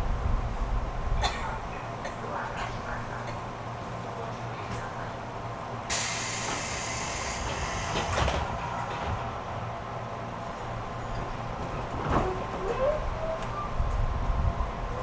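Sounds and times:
low hum of train equipment: 0.0s - 15.0s
compressed air hiss: 5.9s - 8.1s
train doors shutting clunk: 5.9s - 9.3s.

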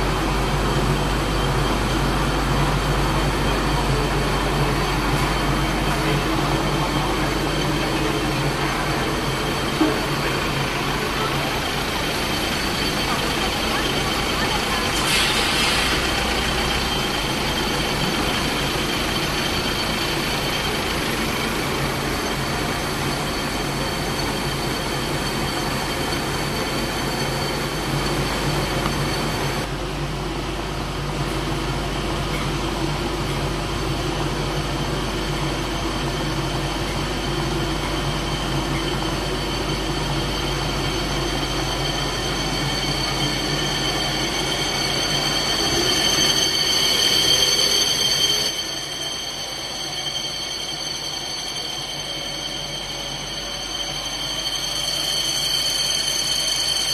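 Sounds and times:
high steady machine whine: 0.0s - 56.9s
machine hiss: 0.1s - 29.7s.

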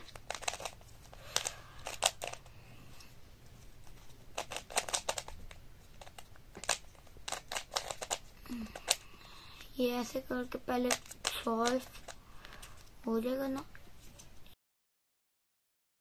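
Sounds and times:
puzzle cube clicking: 0.0s - 2.5s, 4.3s - 9.7s, 10.6s - 12.7s.

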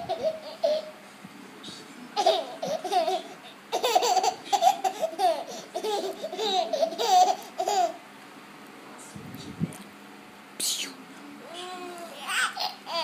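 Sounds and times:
baby laughing: 0.0s - 1.0s, 2.2s - 8.0s, 11.6s - 13.0s.

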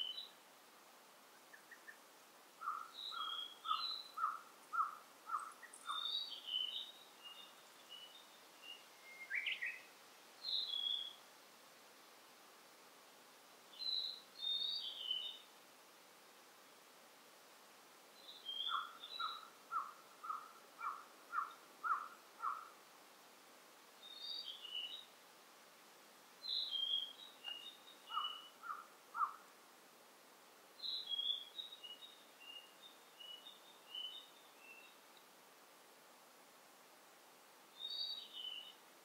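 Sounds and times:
faint ambient hiss: 0.0s - 39.0s
birds singing: 2.6s - 11.2s, 13.8s - 15.4s, 18.2s - 22.7s, 24.0s - 25.1s, 26.4s - 29.4s, 30.8s - 35.0s, 37.8s - 38.8s.

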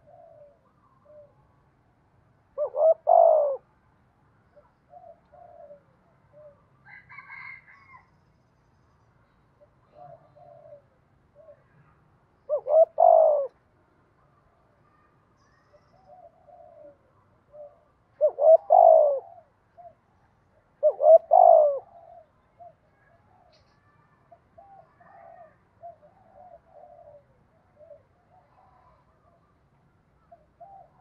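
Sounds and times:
dove cooing: 0.0s - 1.4s, 2.6s - 3.6s, 4.6s - 8.0s, 9.9s - 11.7s, 12.5s - 13.6s, 16.0s - 20.0s, 20.8s - 23.6s, 24.6s - 29.4s, 30.2s - 31.0s.

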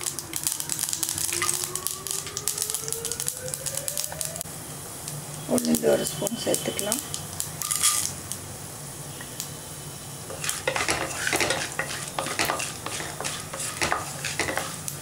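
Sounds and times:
seeds frying in hot oil: 0.0s - 15.0s
utensil scraping against pan: 10.3s - 15.0s.

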